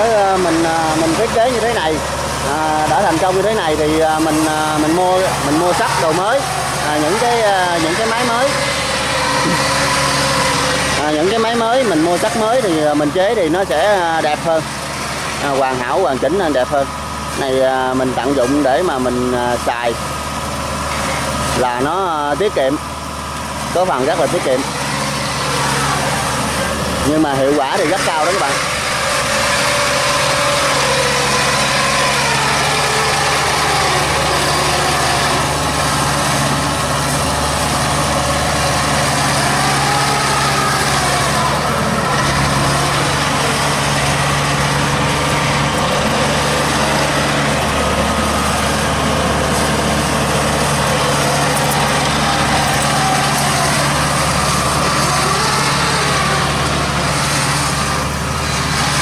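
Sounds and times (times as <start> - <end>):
machine engine running: 0.0 - 59.0.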